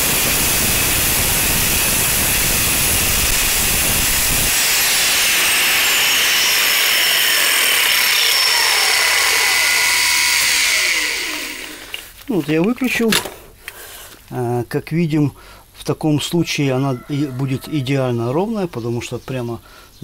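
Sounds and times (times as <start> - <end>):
electric motor running: 0.0 - 12.0
angle grinder grinding metal: 0.0 - 12.2
falling grinder whines: 0.0 - 12.2.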